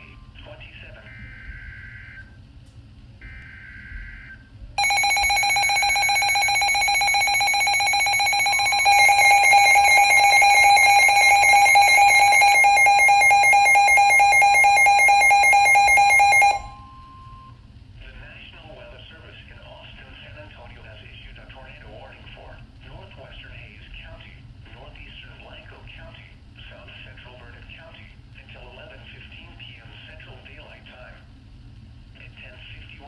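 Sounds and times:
electronic alarm: 3.2s - 17.5s
warbling data tones: 3.3s - 16.7s.

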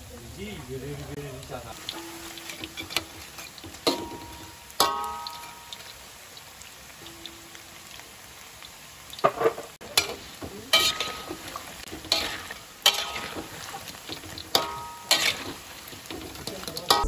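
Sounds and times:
food deep-frying in oil: 0.0s - 17.0s
spatula scraping a wok: 1.9s - 4.1s, 9.2s - 17.0s.

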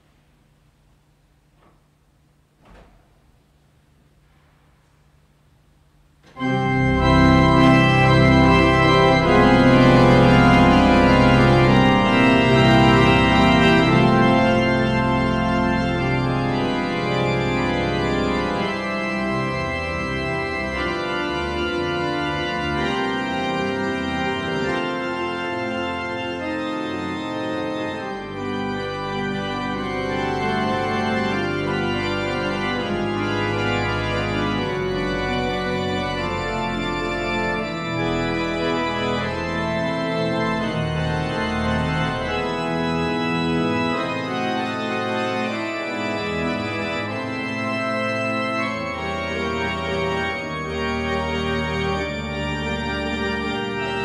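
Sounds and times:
church pipe organ chord: 6.2s - 54.0s.

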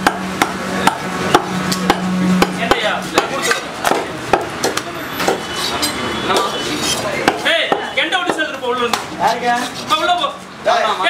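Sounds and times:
knife chopping on wet block: 0.0s - 5.4s, 7.2s - 9.1s.

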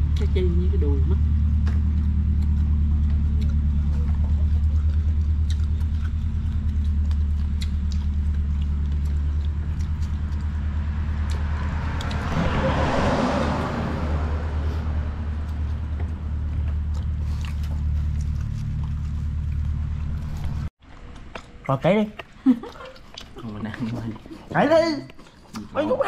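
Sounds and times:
vehicle passing by: 0.0s - 20.7s
steady low hum: 0.0s - 25.5s.

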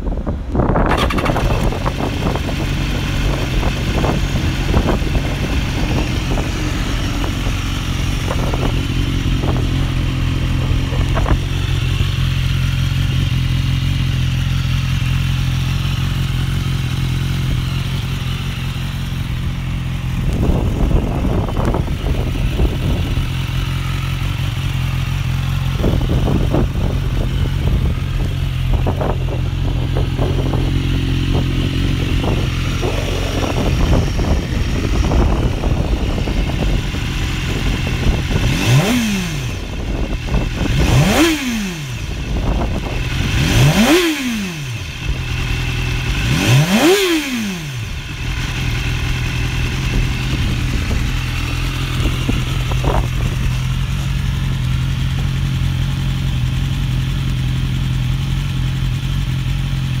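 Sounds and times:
motorcycle engine idling and revving: 0.0s - 60.0s.

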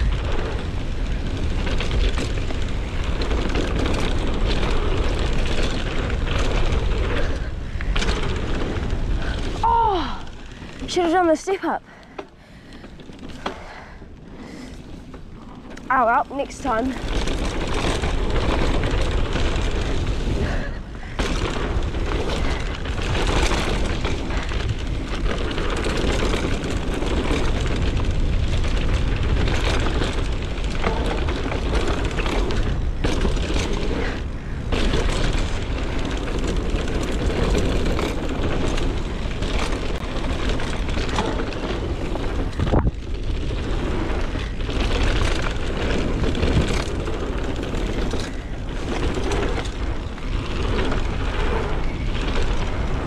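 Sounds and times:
wind on microphone: 0.0s - 10.9s, 17.0s - 53.0s
bike knocks and rattles: 0.0s - 11.2s, 12.1s - 53.0s
tyres running on trail: 0.0s - 53.0s.

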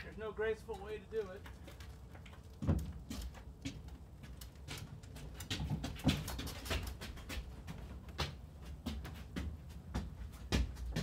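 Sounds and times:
cart frame and wheels knocking: 0.0s - 11.0s.

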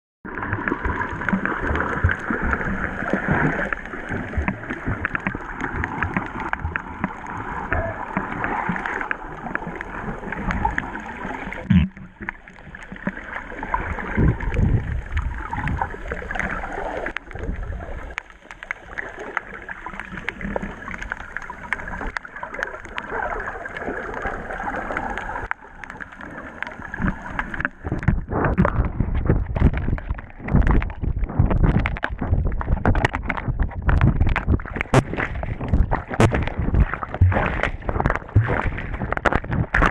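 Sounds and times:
underwater water swirling: 0.3s - 39.9s
low underwater thumps: 27.0s - 39.9s.

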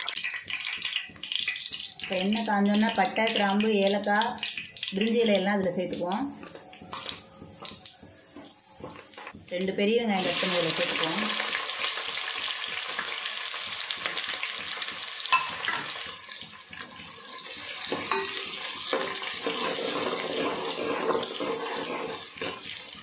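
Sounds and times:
onions sizzling in hot oil: 0.0s - 9.4s, 10.1s - 23.0s
metal spoon scraping pot: 17.3s - 22.9s.

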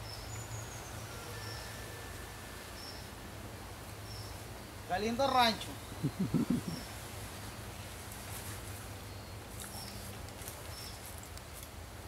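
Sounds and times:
garden background noise: 0.0s - 12.0s.

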